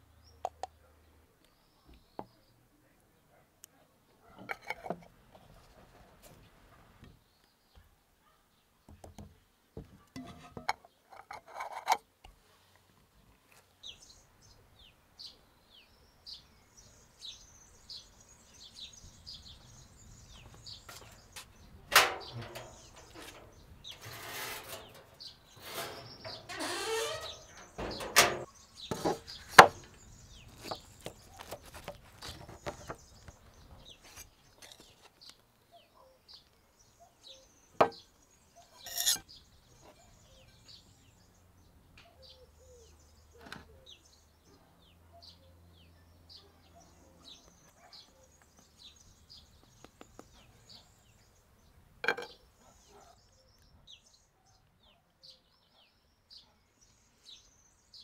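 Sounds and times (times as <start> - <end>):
small birds chirping: 0.0 - 58.0
tableware knocking and clinking: 10.2 - 12.0, 37.8 - 38.0, 38.8 - 39.2, 52.0 - 52.4
rustling or scraping: 20.5 - 35.3, 38.8 - 39.2.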